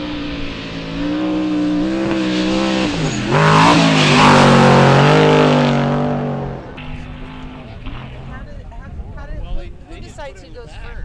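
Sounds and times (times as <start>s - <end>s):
truck engine at high revs: 0.0s - 8.5s
tyre and dirt noise: 0.0s - 11.0s.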